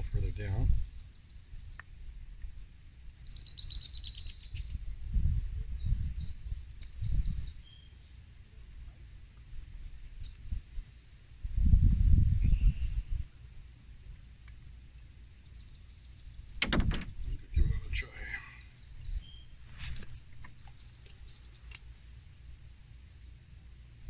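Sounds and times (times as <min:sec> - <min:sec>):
wind gusts on microphone: 0:00.0 - 0:01.0, 0:04.7 - 0:07.6, 0:11.4 - 0:13.3
bird chirps: 0:03.0 - 0:04.7, 0:05.8 - 0:08.0, 0:17.1 - 0:19.5.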